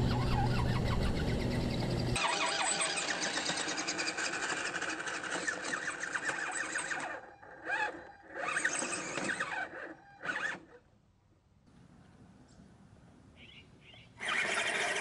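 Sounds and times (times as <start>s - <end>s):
toy car electric motor whining: 2.2s - 10.8s, 14.2s - 15.0s.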